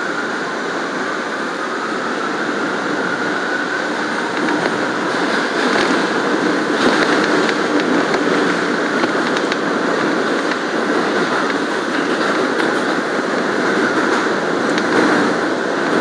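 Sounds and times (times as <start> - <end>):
subway car wheels rumbling: 0.0 - 16.0
wheels clicking on track: 4.2 - 16.0.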